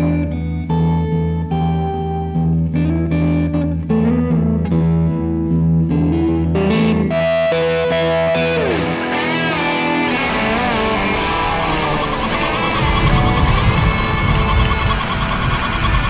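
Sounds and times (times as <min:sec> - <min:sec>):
distorted electric guitar: 0:00.0 - 0:16.0
held low bass note: 0:10.8 - 0:16.0.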